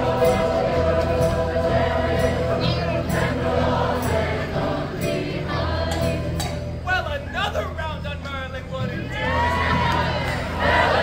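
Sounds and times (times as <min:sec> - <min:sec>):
group singing: 0:00.0 - 0:06.6, 0:09.2 - 0:11.0.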